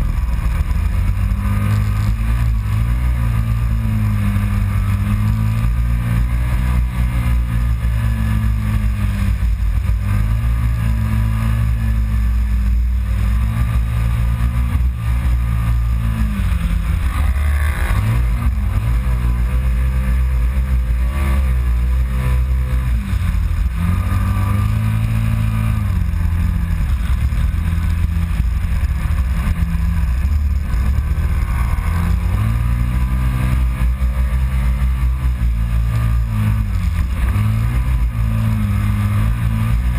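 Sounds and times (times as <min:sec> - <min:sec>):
drivetrain noise: 0:00.0 - 0:39.9
engine revving: 0:00.0 - 0:39.9.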